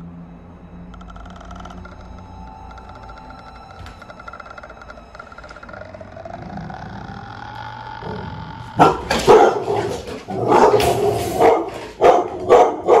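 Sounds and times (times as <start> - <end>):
dog barking: 8.8 - 13.0.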